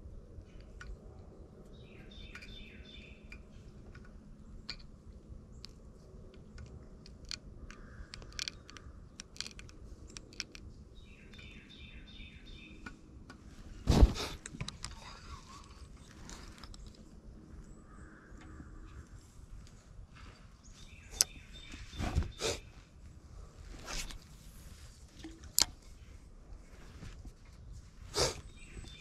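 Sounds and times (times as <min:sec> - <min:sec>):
songbird chirping: 0:00.0 - 0:06.7, 0:07.4 - 0:13.8, 0:15.0 - 0:23.0, 0:26.8 - 0:29.0
clicks and taps of fishing tackle: 0:05.6 - 0:10.7, 0:25.2 - 0:25.9
fabric scraping microphone: 0:13.7 - 0:14.4, 0:21.7 - 0:22.8, 0:23.6 - 0:25.0.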